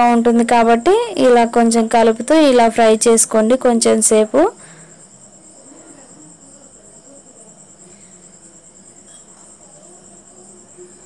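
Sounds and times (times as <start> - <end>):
cricket chirping: 0.0 - 11.0.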